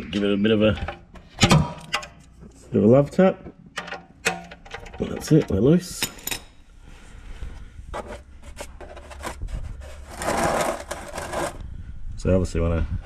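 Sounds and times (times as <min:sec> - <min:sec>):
scraping and rattling: 0:07.9 - 0:11.6.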